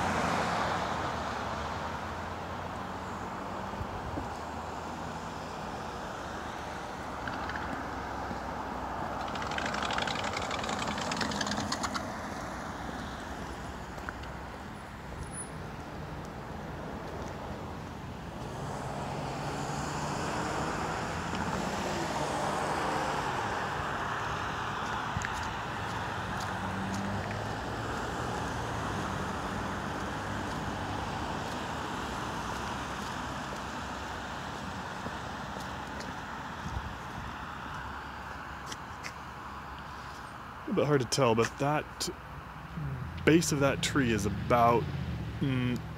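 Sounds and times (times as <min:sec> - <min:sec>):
traffic on wet road: 0:00.0 - 0:45.9
low engine hum: 0:42.4 - 0:45.9.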